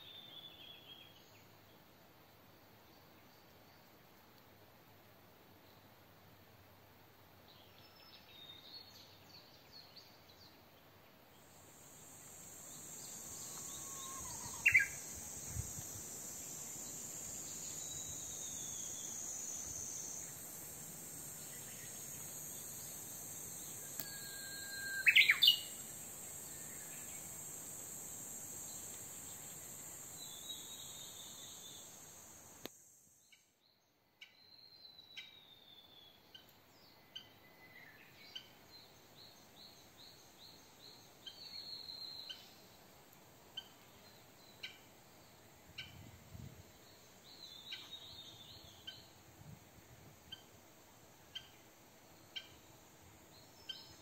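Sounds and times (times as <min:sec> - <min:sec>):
high insect drone: 0:11.4 - 0:33.4
faint bird chirps: 0:12.6 - 0:15.6, 0:23.5 - 0:27.4, 0:51.3 - 0:54.0
loud rising bird calls: 0:13.4 - 0:15.0.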